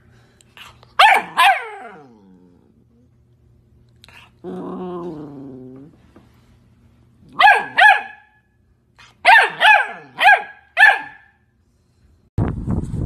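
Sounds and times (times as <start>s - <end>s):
puppy barking: 1.0s - 2.1s, 7.3s - 8.4s, 9.2s - 11.4s.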